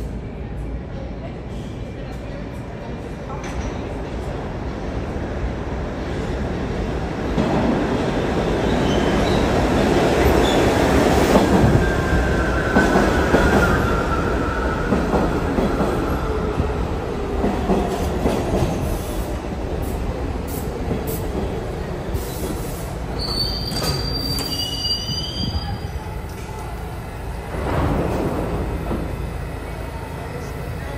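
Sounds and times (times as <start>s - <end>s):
subway wheels rumbling on rail: 0.0s - 30.9s
wheel squeal: 23.2s - 25.6s.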